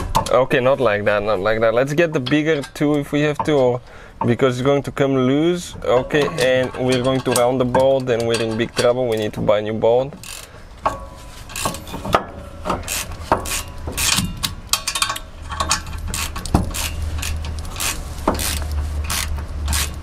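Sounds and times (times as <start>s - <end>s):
metal scraping: 5.6s - 9.2s, 10.2s - 20.0s
ratchet wrench clicking: 10.2s - 20.0s.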